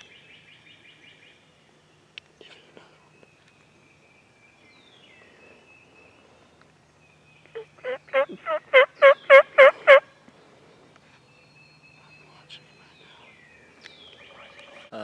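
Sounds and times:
faint bird calls: 0:02.3 - 0:15.0
turkey yelping: 0:07.6 - 0:10.0.

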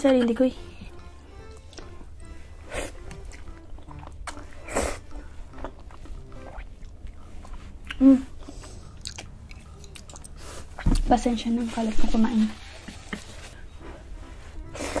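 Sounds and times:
wet chewing: 0:00.8 - 0:02.0, 0:02.6 - 0:11.1.

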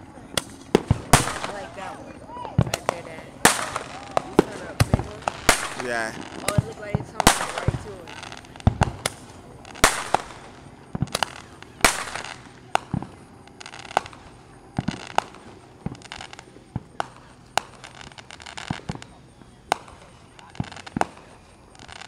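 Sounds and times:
distant fireworks bangs: 0:00.0 - 0:22.0.

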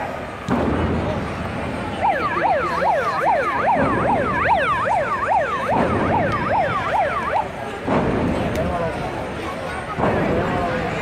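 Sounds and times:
arena crowd noise: 0:00.0 - 0:11.0
siren-like yelping tone: 0:02.0 - 0:07.5.

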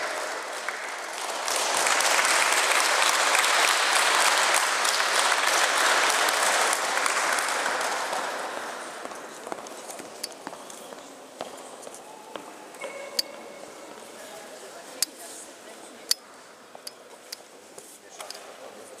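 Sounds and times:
audience clapping: 0:00.0 - 0:09.3.

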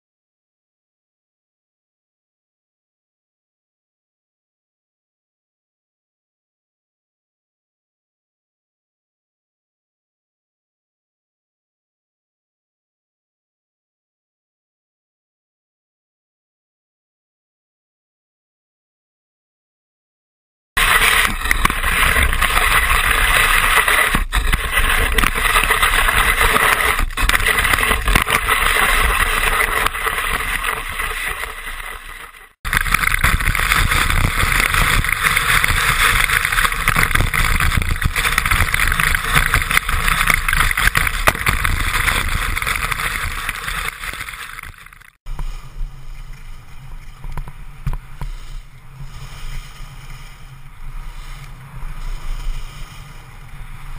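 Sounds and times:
skis hissing through snow: 0:20.8 - 0:44.7, 0:48.2 - 0:53.9
wind on microphone: 0:20.8 - 0:44.7.

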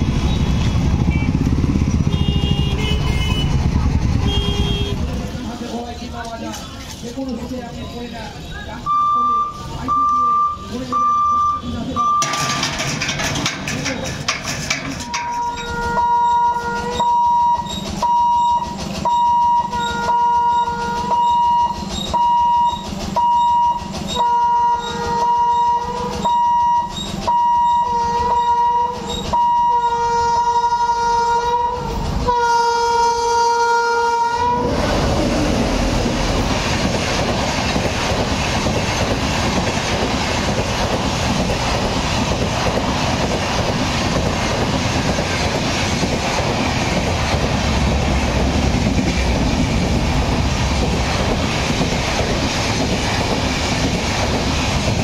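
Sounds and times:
train wheels clattering over rails: 0:00.0 - 0:07.7, 0:11.9 - 0:30.3, 0:34.0 - 0:55.0
train horn blasts: 0:02.0 - 0:03.6, 0:04.2 - 0:05.1, 0:15.3 - 0:17.6, 0:18.4 - 0:22.6, 0:23.3 - 0:34.8.

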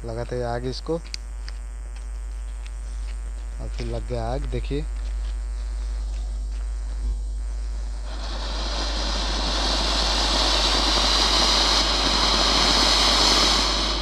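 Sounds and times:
firework fountain hissing: 0:07.8 - 0:14.0.

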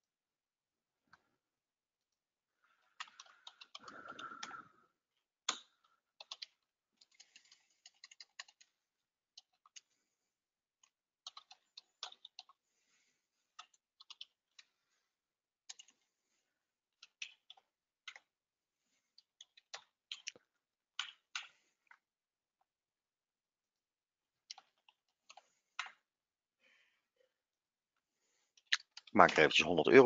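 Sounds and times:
keyboard typing: 0:02.8 - 0:04.8, 0:05.4 - 0:10.0, 0:10.8 - 0:12.6, 0:13.4 - 0:14.8, 0:15.6 - 0:16.1, 0:17.0 - 0:18.3, 0:24.4 - 0:26.0.

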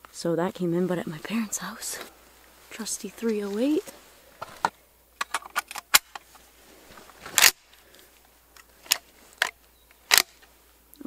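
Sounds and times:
rifle metallic clicks and clacks: 0:07.4 - 0:07.6, 0:08.6 - 0:10.5.

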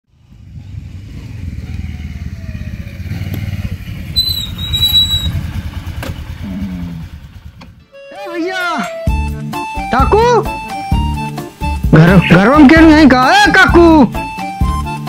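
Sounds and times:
motorcycle engine passing by: 0:00.1 - 0:07.8.

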